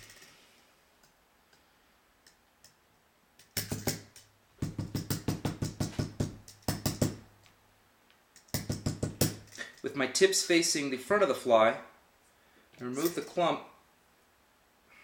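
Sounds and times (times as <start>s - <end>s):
hair stacker tapping on bench: 3.6s - 7.2s, 8.5s - 9.4s.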